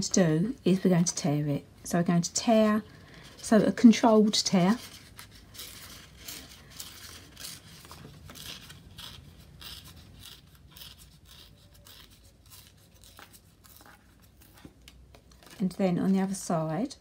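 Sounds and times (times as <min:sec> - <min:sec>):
cardstock tearing: 0:04.9 - 0:14.7.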